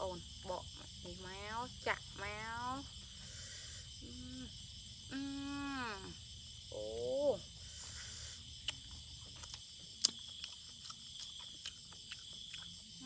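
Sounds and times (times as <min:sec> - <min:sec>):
insects chirring: 0:00.0 - 0:13.0
woman wordless vocal sounds: 0:03.9 - 0:06.2
mouth clicks and smacks: 0:08.6 - 0:12.8.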